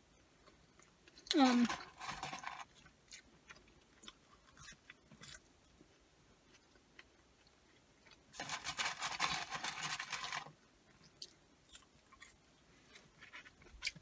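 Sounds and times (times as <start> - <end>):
paper wrapper crinkling: 1.4 - 2.8, 8.4 - 10.5.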